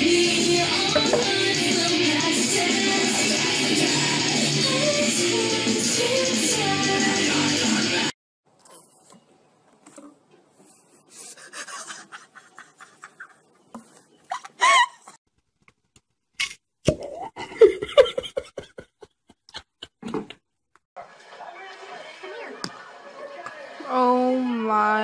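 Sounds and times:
person laughing: 11.1s - 13.6s, 14.2s - 15.2s, 16.9s - 20.4s.

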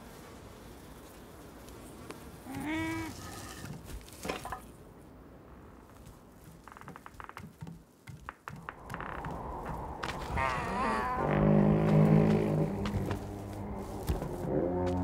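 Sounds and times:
bleat-like animal cry: 2.5s - 3.2s.

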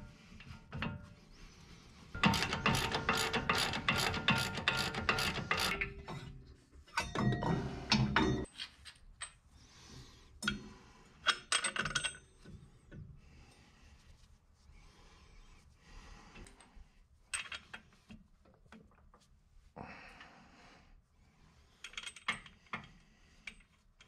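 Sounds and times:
metal tools and bolts clinking: 2.2s - 9.4s, 11.2s - 12.5s.

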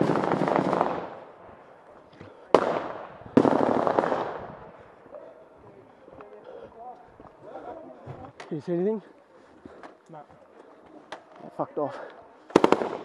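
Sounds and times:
automatic gunfire bursts: 0.0s - 1.2s, 2.5s - 4.4s, 12.5s - 13.0s.

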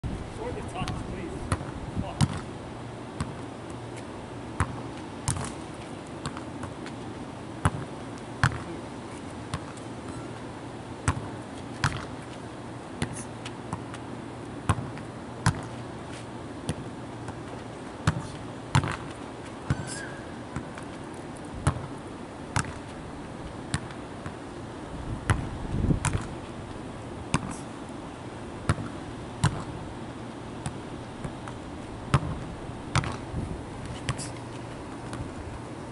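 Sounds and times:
ball thumping against wall: 22.6s - 22.9s, 25.3s - 26.3s, 28.7s - 29.7s, 30.6s - 33.2s.

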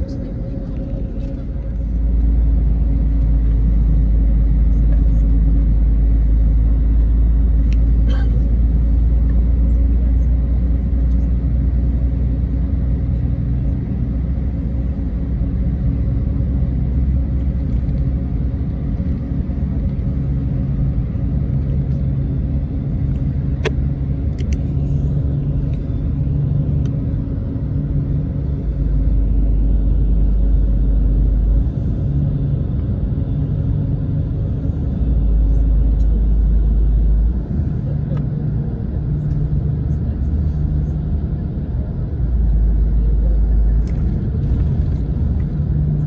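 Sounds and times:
bus engine and road rumble: 0.0s - 46.0s.

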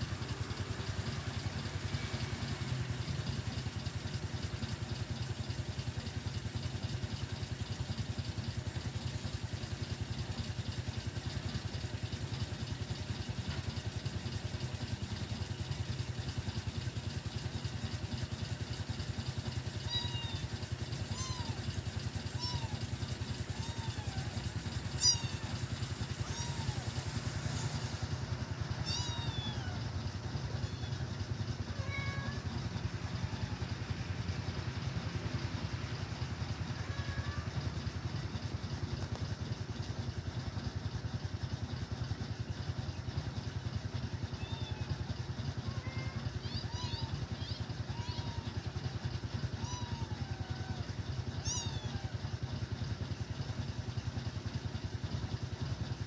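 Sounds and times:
low engine hum: 0.0s - 56.0s
cat meowing: 19.8s - 20.5s, 21.1s - 21.6s, 22.3s - 22.8s, 23.5s - 28.1s, 28.7s - 31.1s, 31.7s - 33.9s, 36.7s - 37.8s, 44.3s - 52.2s.

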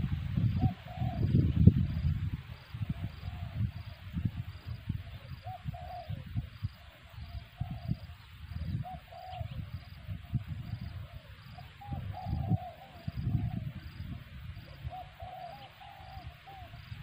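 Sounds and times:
dove cooing: 0.6s - 1.4s, 5.0s - 17.0s.

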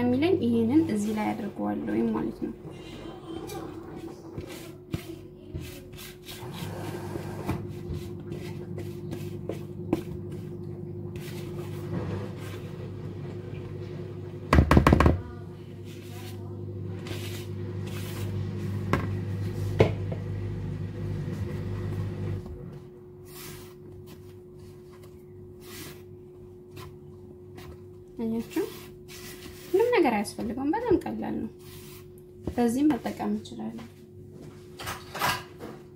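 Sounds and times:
spatula scraping bowl: 0.0s - 13.3s, 15.8s - 19.8s, 23.2s - 33.4s
steady low hum: 0.0s - 34.8s
hands rubbing batter: 3.5s - 10.6s, 11.2s - 12.8s, 15.9s - 18.4s, 23.2s - 33.4s
loud knock on bowl: 14.5s - 15.2s.

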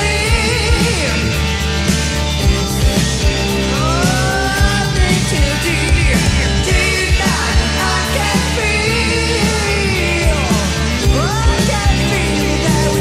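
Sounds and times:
electric guitar with pitch bends: 0.0s - 13.0s
person singing: 3.6s - 13.0s
drum machine beat: 3.7s - 8.6s.

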